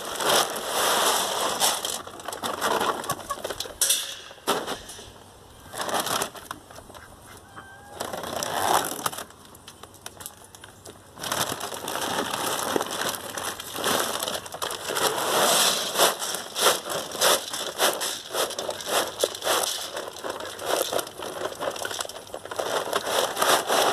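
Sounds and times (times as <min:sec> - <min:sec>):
paper bag crinkling and rustling: 0:00.0 - 0:03.8, 0:05.7 - 0:06.6, 0:07.8 - 0:23.9.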